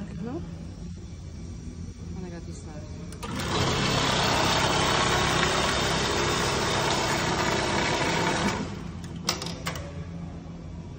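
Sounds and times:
machine hum: 0:00.0 - 0:10.9
industrial sewing machine running: 0:03.2 - 0:09.1.

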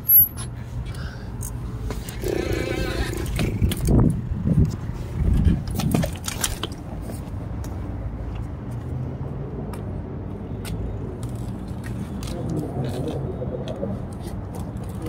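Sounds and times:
bicycle knocks and rattles: 0:05.2 - 0:06.9.

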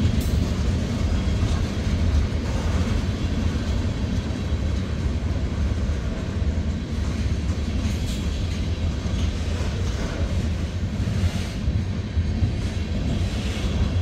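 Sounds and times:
train wheels rumbling on rail: 0:00.0 - 0:14.0.

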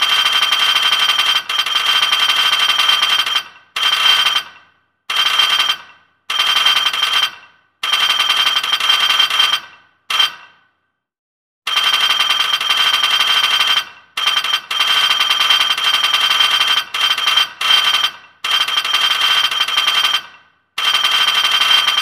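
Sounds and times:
alarm bell ringing rapidly: 0:20.8 - 0:22.0.

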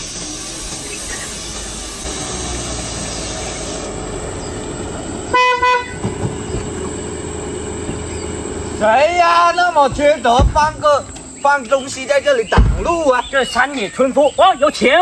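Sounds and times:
car engine and road noise: 0:00.0 - 0:13.9
car horn blasts: 0:05.2 - 0:08.8
knocks: 0:09.8 - 0:11.2.

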